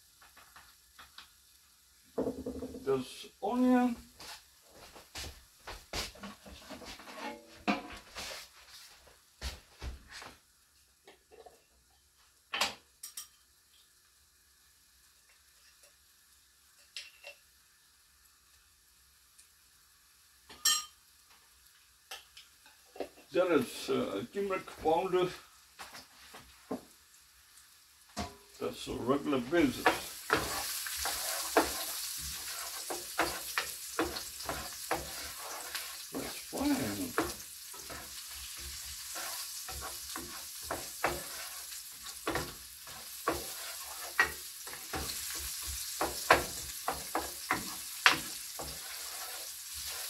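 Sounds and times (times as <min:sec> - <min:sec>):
pan sizzling: 0:00.0 - 0:50.0
spoon scraping and knocking pan: 0:02.2 - 0:02.8, 0:06.0 - 0:08.5, 0:28.1 - 0:28.5, 0:29.4 - 0:50.0.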